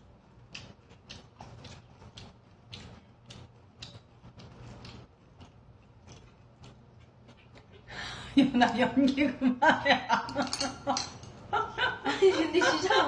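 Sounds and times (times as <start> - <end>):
wet chewing: 0.0 - 7.9.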